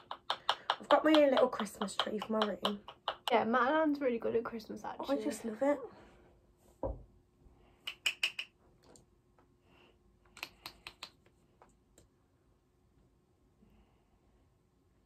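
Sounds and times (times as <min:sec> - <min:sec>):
makeup items clicking and tapping: 0:00.0 - 0:03.5, 0:10.3 - 0:11.3.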